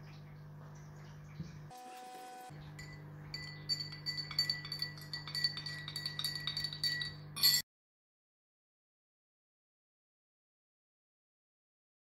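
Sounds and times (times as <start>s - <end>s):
teaspoon clinking against glass: 2.8s - 7.6s.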